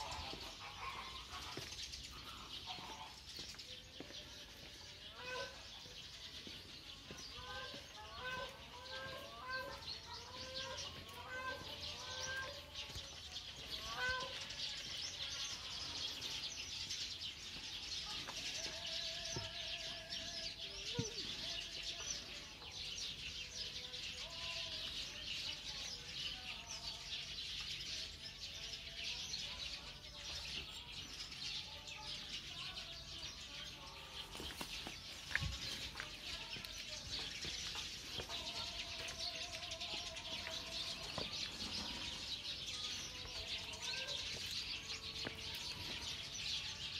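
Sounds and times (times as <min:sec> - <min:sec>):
birds chirping and twittering: 0:00.0 - 0:46.9.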